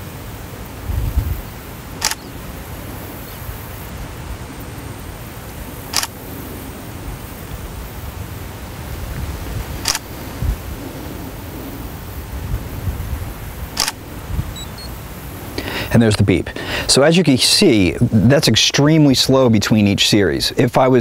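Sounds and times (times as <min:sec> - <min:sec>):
camera shutter firing: 0:02.0 - 0:02.4, 0:05.9 - 0:06.2, 0:09.8 - 0:10.3, 0:13.8 - 0:14.2.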